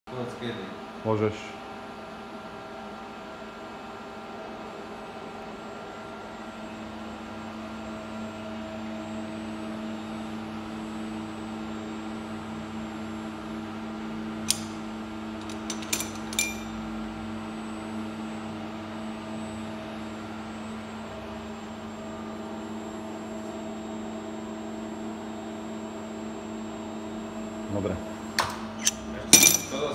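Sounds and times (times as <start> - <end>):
sharp metallic click: 14.5 - 14.8, 28.4 - 29.7
metal parts clinking: 15.4 - 16.7, 28.8 - 29.9.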